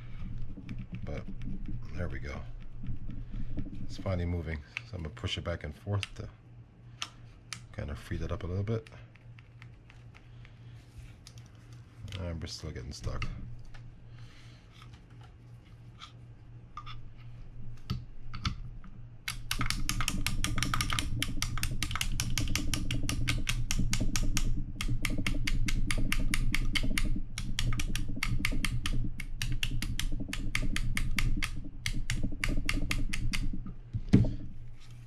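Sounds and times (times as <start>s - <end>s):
rapid metallic clicking: 19.3s - 34.6s.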